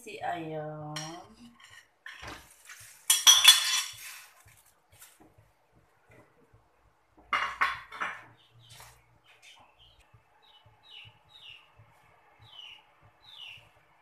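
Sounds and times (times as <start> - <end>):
small bird chirping: 8.3 - 13.8.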